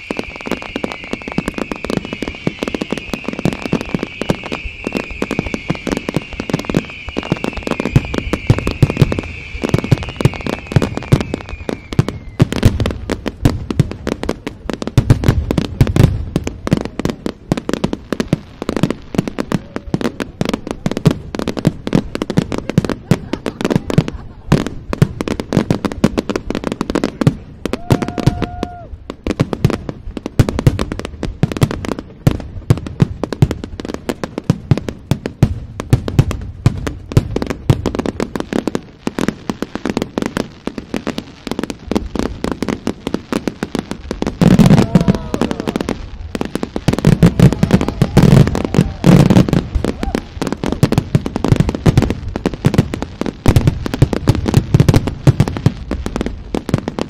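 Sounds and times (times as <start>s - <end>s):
steady whistle: 0.0s - 12.5s
firework bangs and crackles: 0.0s - 57.0s.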